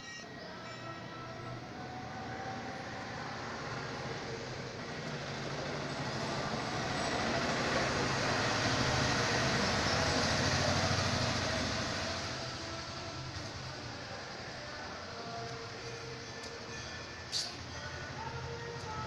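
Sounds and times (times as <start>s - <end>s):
passing vehicle rumbling: 1.7s - 15.2s.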